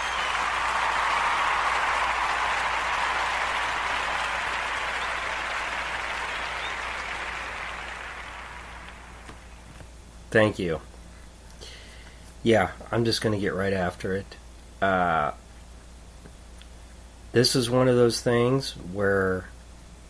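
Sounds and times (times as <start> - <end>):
crowd applause: 0.0 - 9.7.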